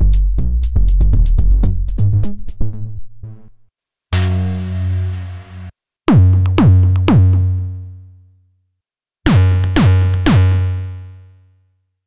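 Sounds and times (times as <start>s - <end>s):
deep synthesized kick drum: 0.0s - 3.6s, 6.1s - 7.8s.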